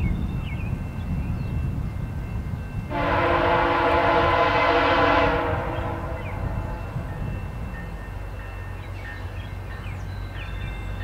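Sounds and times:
train horn blast: 2.9 - 7.0.

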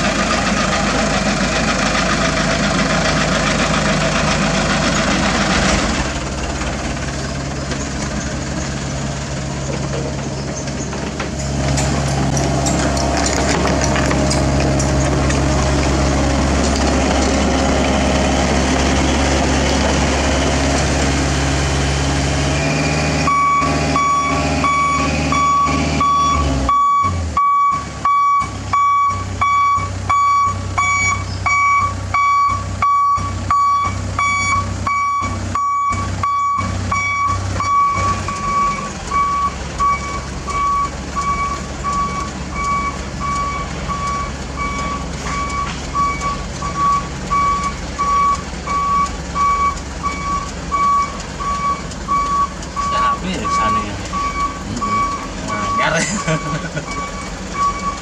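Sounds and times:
diesel engine running low: 0.0 - 58.0
reversing alarm beeping: 23.2 - 58.0.

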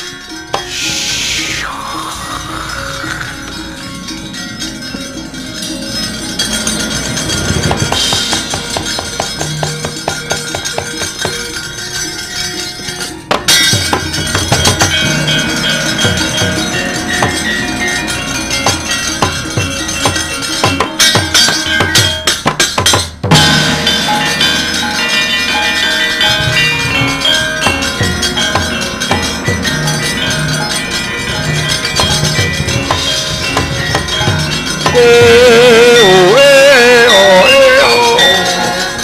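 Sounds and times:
gamelan ensemble playing: 0.0 - 39.0
ringing gongs: 0.0 - 39.0
drumming: 0.5 - 12.0, 12.8 - 39.0.

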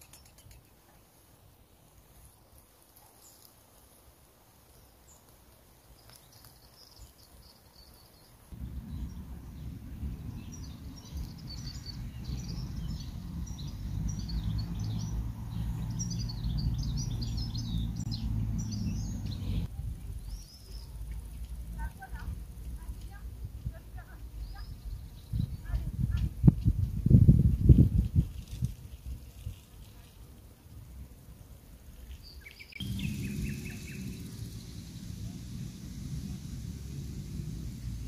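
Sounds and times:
small songbirds chirping: 0.0 - 38.0
low steady rumble: 8.6 - 25.1, 32.8 - 38.0.

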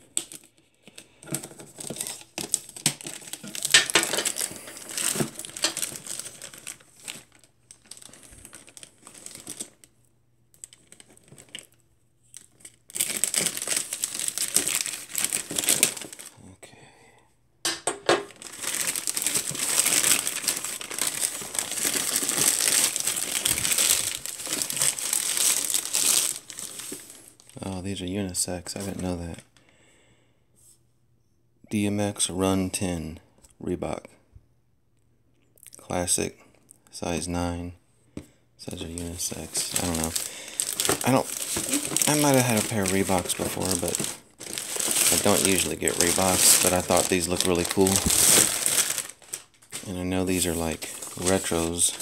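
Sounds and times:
plastic mailer bag crinkling and tearing: 0.0 - 9.9, 10.5 - 16.4, 18.2 - 27.6, 38.6 - 52.0.

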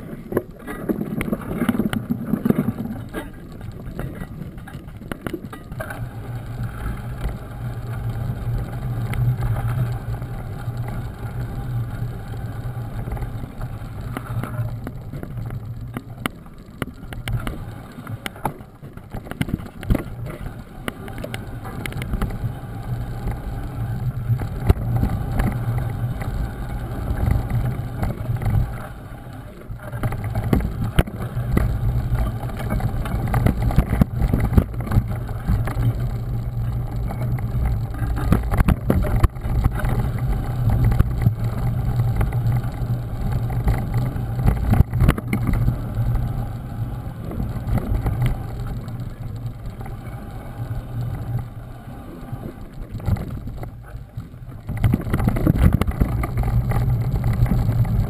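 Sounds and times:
bike rattling over bumps: 0.0 - 58.0
tyres rumbling on dirt: 0.0 - 58.0
wind on microphone: 19.1 - 58.0.

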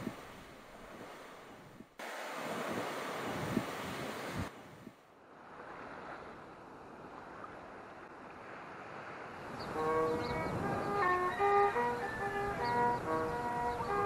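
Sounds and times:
surf breaking against rocks: 0.0 - 4.6
wind buffeting microphone: 0.0 - 6.2, 8.4 - 14.0
gentle waves on sandy shore: 0.0 - 14.0
violin playing: 9.8 - 14.0.

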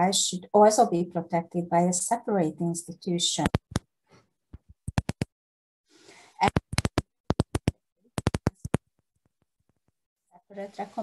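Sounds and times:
sharp short clicks: 6.4 - 8.8.

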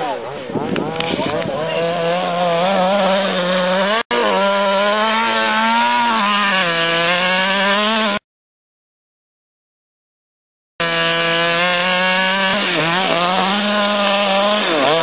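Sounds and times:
two-stroke engine running: 0.7 - 8.2, 10.8 - 15.0.

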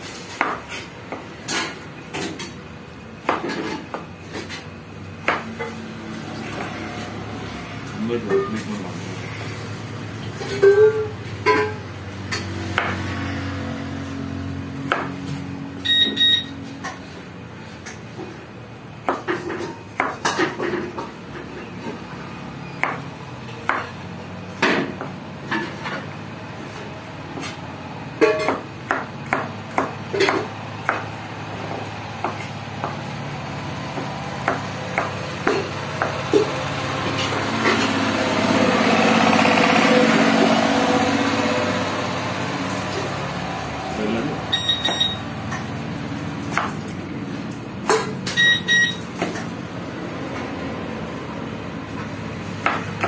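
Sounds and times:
knife chopping on plastic board: 33.9 - 36.5.

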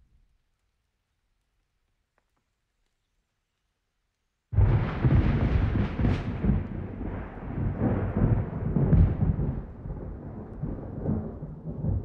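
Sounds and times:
rain: 0.0 - 12.0
rolling thunder: 4.6 - 12.0
sharp thunder crack: 4.6 - 12.0.

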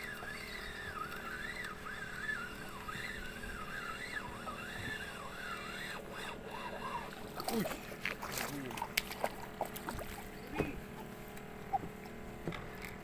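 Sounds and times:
fishing reel drag buzzing: 0.0 - 11.8.

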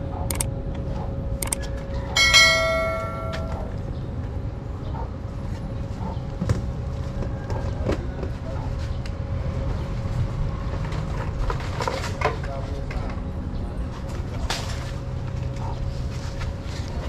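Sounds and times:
bright bell ding: 2.2 - 3.8.

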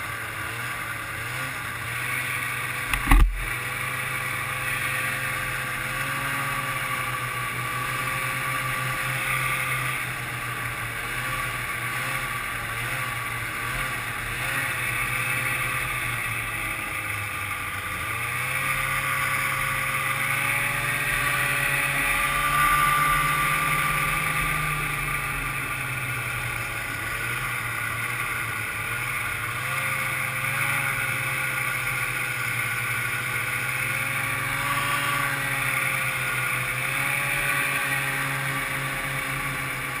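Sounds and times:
snowmobile engine running: 0.0 - 40.0.

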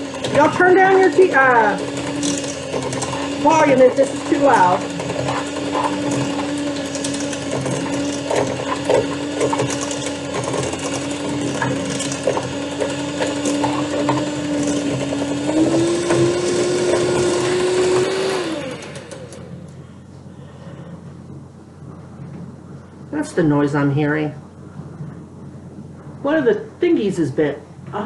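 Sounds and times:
electric mixer motor whine: 0.0 - 19.8.

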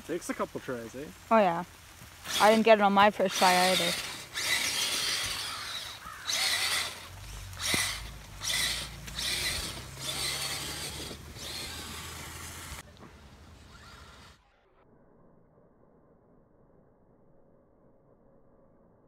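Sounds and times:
leaves and brush rustling: 0.0 - 14.4
electric motor and gears whirring: 1.6 - 14.7.

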